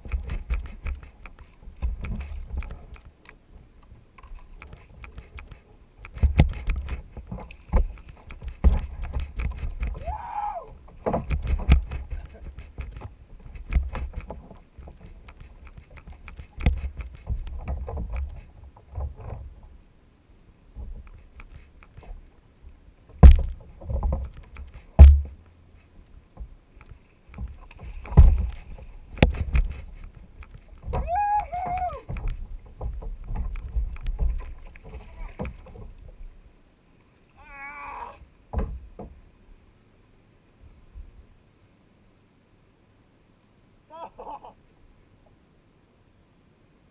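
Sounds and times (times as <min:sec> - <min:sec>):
knocks on plastic kayak: 0:25.0 - 0:25.4.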